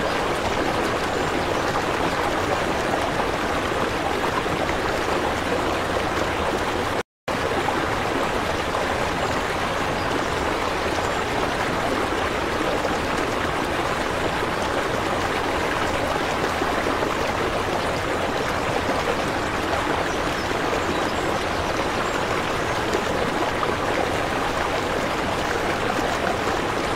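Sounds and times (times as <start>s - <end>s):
aquarium water flowing: 0.0s - 10.3s.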